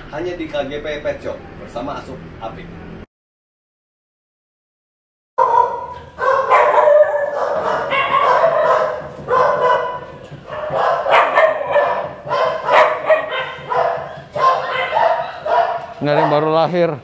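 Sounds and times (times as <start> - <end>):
many dogs barking and yelping: 5.4 - 16.8.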